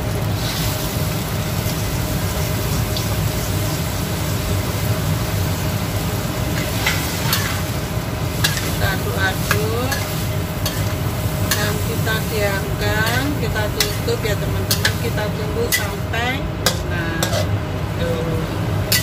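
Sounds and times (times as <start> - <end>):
utensil stirring in pot: 6.6 - 16.0
utensil scraping against pot: 9.5 - 11.8, 16.7 - 17.5.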